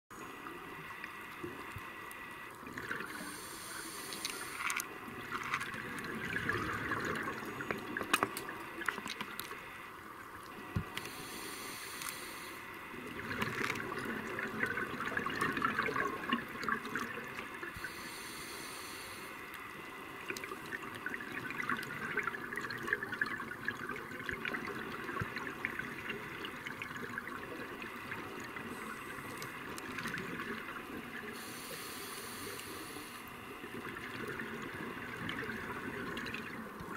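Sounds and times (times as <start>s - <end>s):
exhaled air bubbling underwater: 0.2s - 36.9s
regulator inhale hiss: 3.0s - 4.9s, 10.9s - 12.9s, 17.7s - 19.8s, 28.6s - 29.8s, 31.2s - 33.4s.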